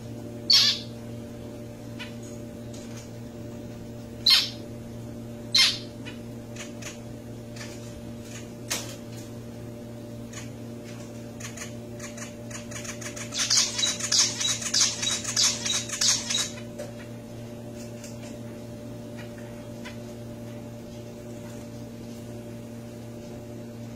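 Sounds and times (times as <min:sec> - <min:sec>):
finch calls: 0:00.5 - 0:00.9, 0:04.2 - 0:04.6, 0:05.5 - 0:06.9, 0:11.4 - 0:16.6.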